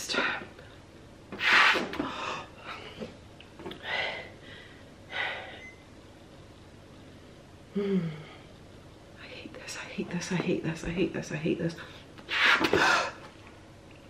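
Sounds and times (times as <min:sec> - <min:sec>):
heavy breathing: 0:03.7 - 0:05.6
person humming: 0:07.7 - 0:08.4.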